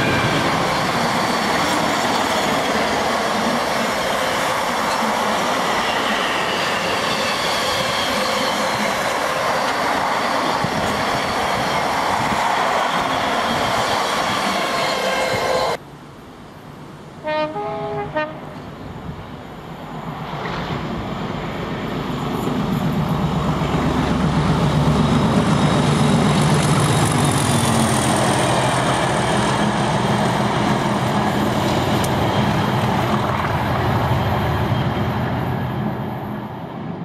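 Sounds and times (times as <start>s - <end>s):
two-note train horn: 17.2s - 18.6s.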